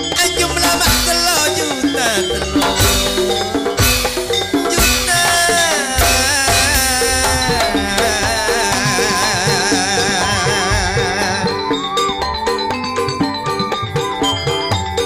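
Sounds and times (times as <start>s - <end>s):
man singing into a microphone: 0.0s - 3.1s, 4.6s - 12.0s
sharp drum strokes: 0.0s - 13.4s
live music with heavy bass: 0.0s - 14.6s.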